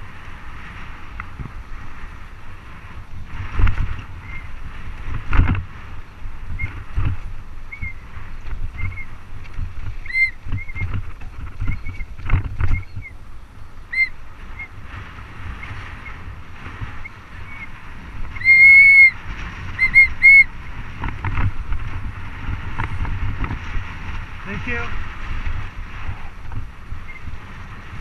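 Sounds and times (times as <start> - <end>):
bike brakes squealing: 10.0 - 10.9, 18.4 - 19.2, 19.8 - 20.5.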